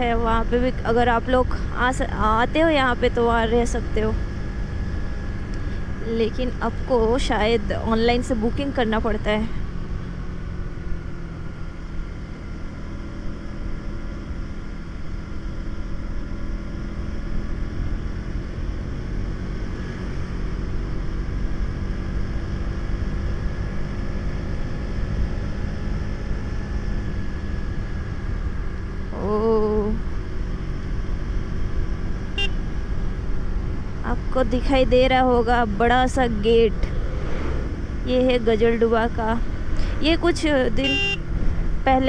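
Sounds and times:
motorcycle engine cruising: 0.0 - 42.0
wind rumble on microphone: 34.0 - 40.6.

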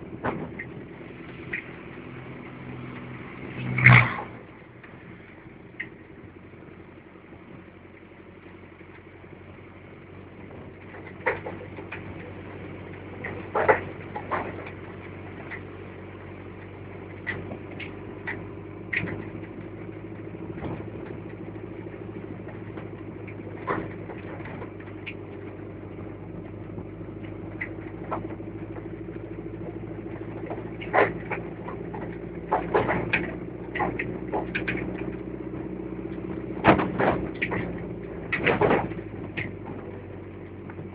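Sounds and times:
vehicle engine running: 0.0 - 40.9
sharp knocks and rattles: 0.1 - 2.2, 10.5 - 40.9.

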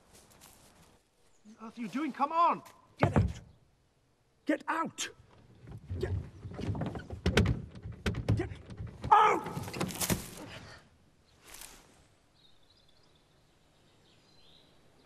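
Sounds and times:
short rustle: 0.0 - 1.0, 11.3 - 12.2
knocks and thuds: 3.0 - 3.5, 5.6 - 10.4.

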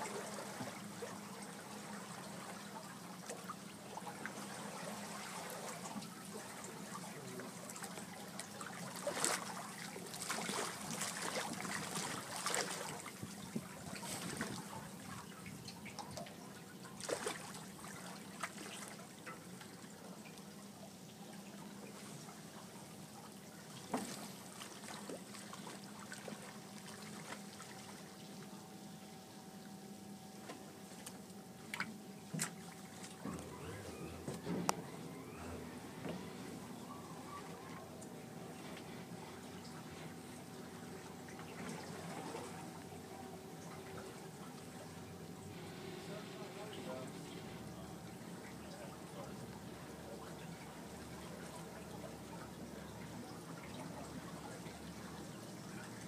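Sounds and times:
water trickling: 0.0 - 28.6, 29.6 - 45.6
faint steady hum: 0.0 - 56.0
otter splashing in water: 8.7 - 13.2, 17.0 - 18.9.

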